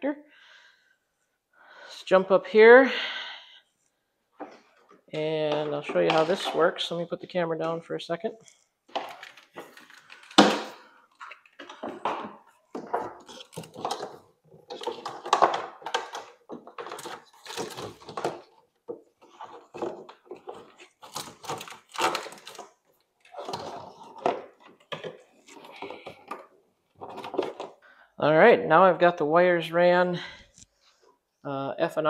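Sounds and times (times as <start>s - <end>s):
wires rustling and scraping plastic: 4.4s - 7.8s, 8.4s - 27.9s.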